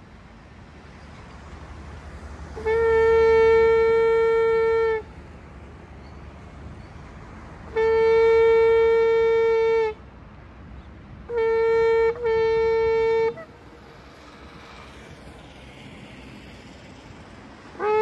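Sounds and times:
shofar blowing: 17.8 - 18.0.

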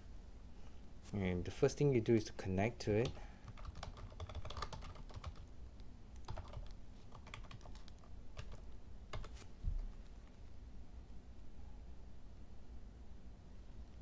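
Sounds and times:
keyboard typing: 3.0 - 5.5, 6.2 - 9.9.

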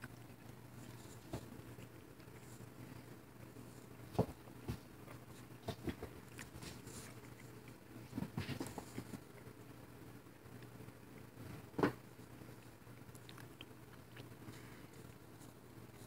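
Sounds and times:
cat paws on wooden floor: 3.6 - 9.3.

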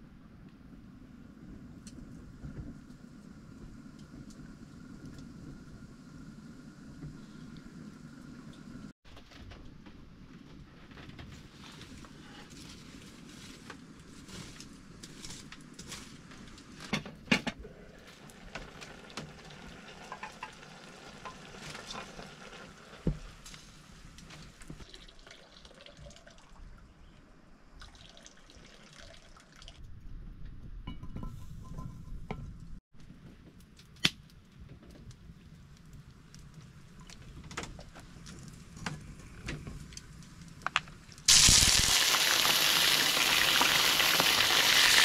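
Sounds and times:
water dripping and trickling: 24.8 - 26.9, 27.8 - 29.9.

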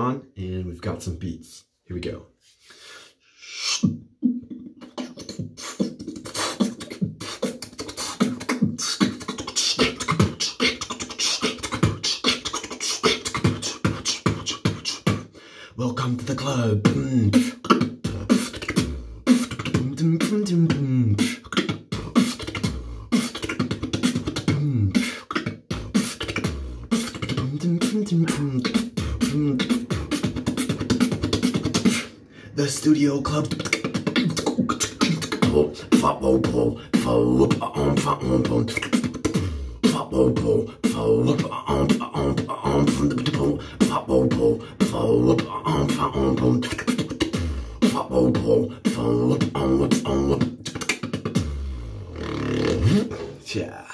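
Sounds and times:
vocal bass line: 3.5 - 53.9
beatboxing drum hits: 3.6 - 15.4, 16.0 - 53.9
beatboxed kick and snare clicks: 16.9 - 32.1, 48.9 - 51.6.

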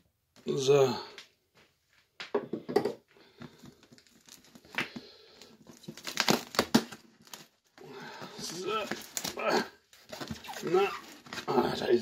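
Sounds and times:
packaging crinkling and tearing: 3.4 - 12.0.

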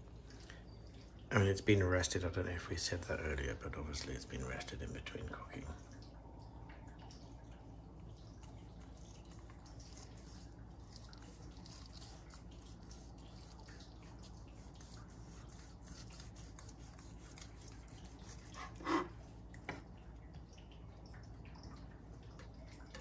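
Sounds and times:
knife slicing meat on cutting board: 14.6 - 19.1.

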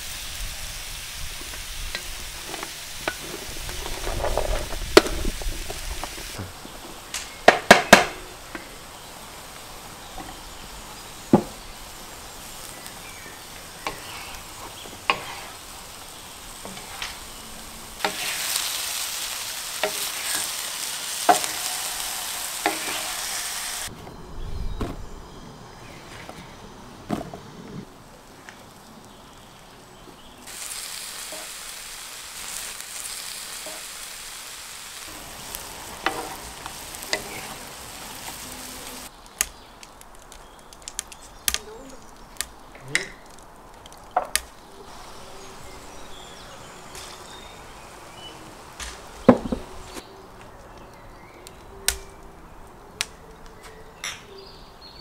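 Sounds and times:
meat sizzling in a hot pan: 0.0 - 23.9, 30.4 - 39.3.

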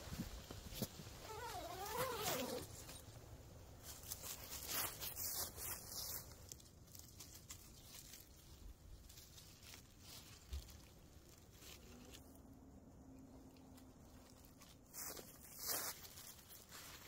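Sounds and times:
rustling close to the ground: 0.0 - 17.0
footsteps crunching through dry leaves: 3.8 - 12.3, 13.7 - 17.0.

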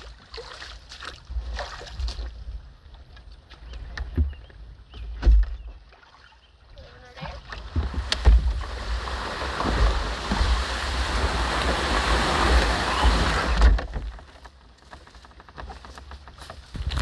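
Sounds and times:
canoe hull dragged over grass: 7.1 - 17.0
light rustles and clicks: 13.6 - 17.0.

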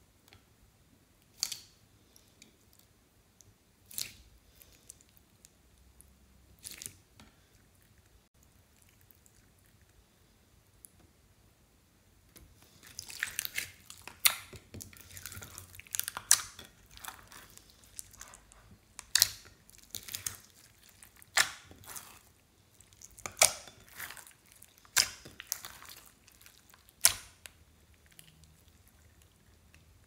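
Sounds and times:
slime squelching and crackling: 6.6 - 9.8, 12.5 - 30.0.

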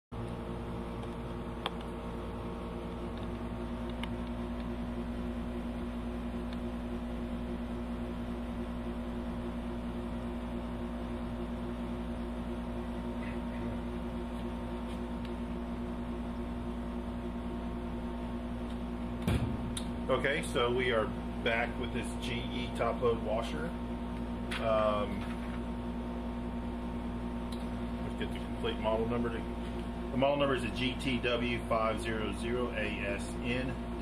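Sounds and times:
air conditioner click: 0.2 - 2.0, 3.1 - 4.8, 18.6 - 20.1, 24.1 - 25.7
air conditioner humming: 0.2 - 34.0.

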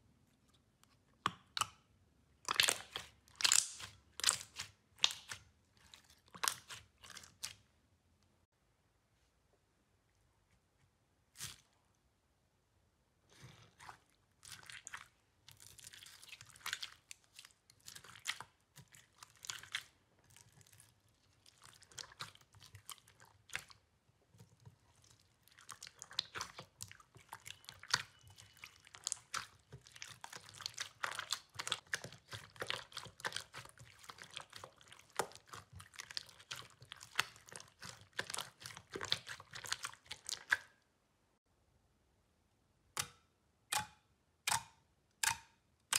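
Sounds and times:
slime crackling while squeezed: 2.5 - 5.4, 24.8 - 40.6.

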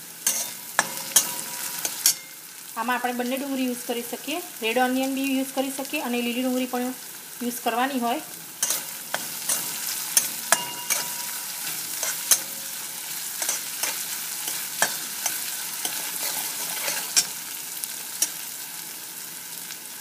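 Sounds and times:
paste sizzling in hot oil: 0.0 - 20.0
metal spatula scraping wok: 0.2 - 2.5, 8.6 - 18.6.

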